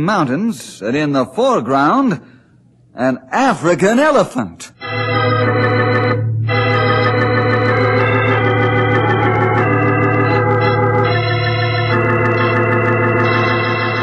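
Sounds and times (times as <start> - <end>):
organ chords: 4.8 - 14.0.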